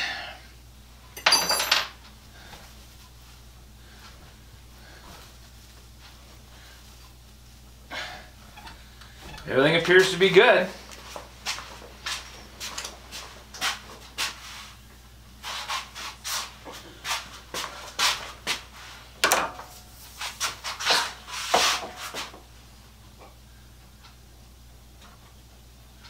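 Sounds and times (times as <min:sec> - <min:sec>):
steady low hum: 0:00.0 - 0:26.0
scraping and knocking at workbench: 0:20.8 - 0:22.4.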